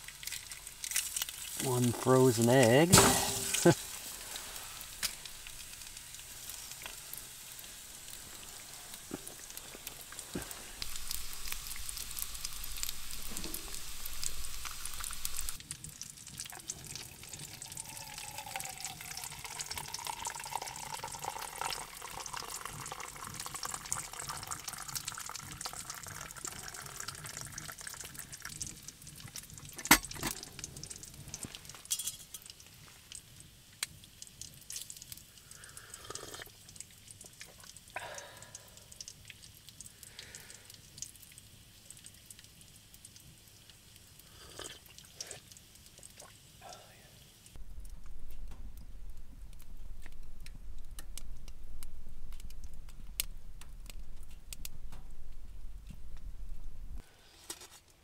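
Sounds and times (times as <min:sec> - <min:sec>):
hot water pouring into metal mug: 0:00.0 - 0:33.3
bacon and egg sizzling in pan: 0:00.0 - 0:47.6.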